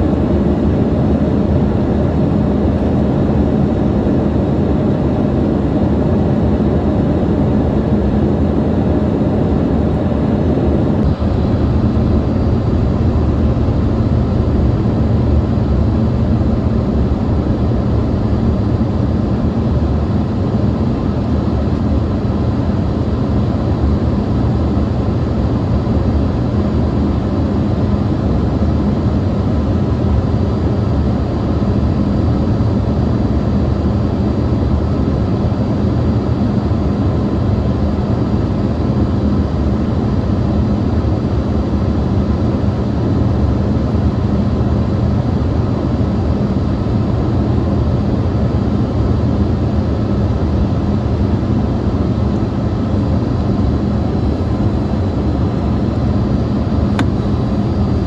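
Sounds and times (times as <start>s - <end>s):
low hum: 0.0s - 21.5s
jet engines droning: 0.0s - 58.0s
air rushing over fuselage: 7.5s - 20.6s.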